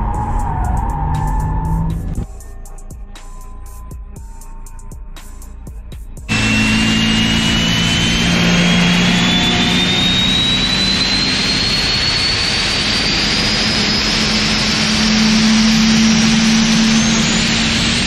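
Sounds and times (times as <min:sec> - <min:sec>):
compressor high whine: 0:00.0 - 0:02.2, 0:06.3 - 0:18.0
low engine drone: 0:00.0 - 0:03.9, 0:06.3 - 0:18.0.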